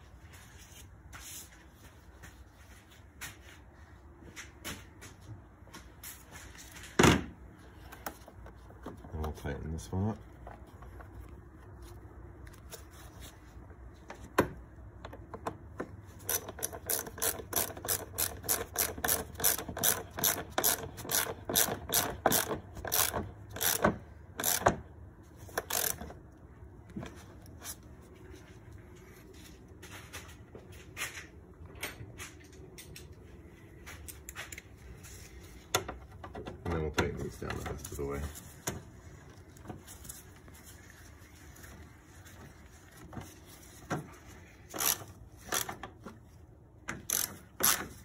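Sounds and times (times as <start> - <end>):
hand ratchet clicking: 16.2 - 24.7, 25.5 - 26.1, 44.7 - 45.8, 47.0 - 48.0.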